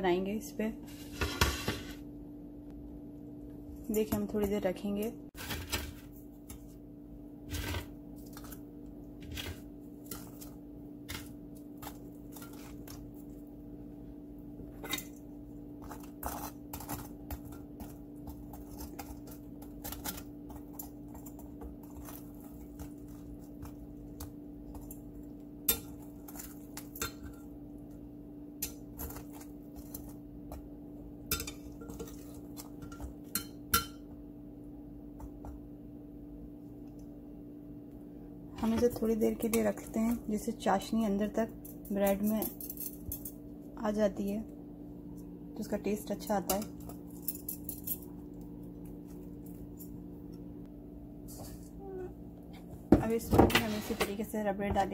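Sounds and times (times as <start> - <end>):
steady low hum: 0.0 - 54.9
metal tongs clinking on glass dish: 31.3 - 32.2.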